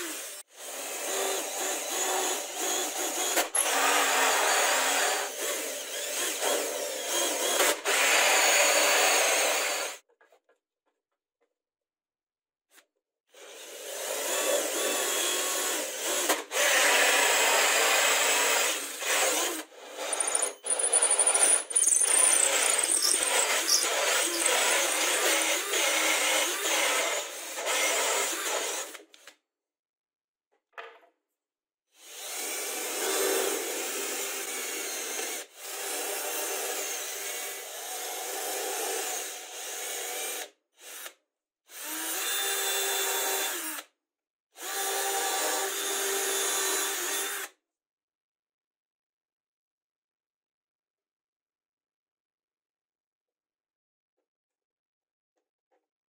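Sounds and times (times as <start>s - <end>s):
drill cutting through plywood: 0.0s - 10.0s, 13.4s - 29.3s, 32.0s - 43.9s, 44.6s - 47.6s
drill boring into chipboard: 13.4s - 29.0s, 32.0s - 43.9s, 44.6s - 47.5s.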